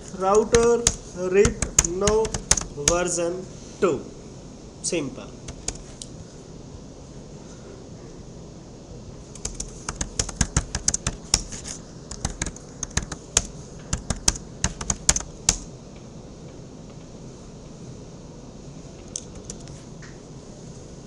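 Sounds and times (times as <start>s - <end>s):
computer keyboard typing: 0.0s - 3.2s, 5.4s - 6.0s, 9.3s - 15.7s, 19.2s - 19.7s.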